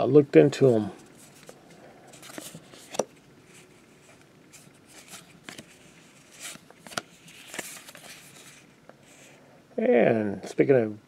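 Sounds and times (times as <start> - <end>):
cards sliding against each other: 1.0 - 9.4.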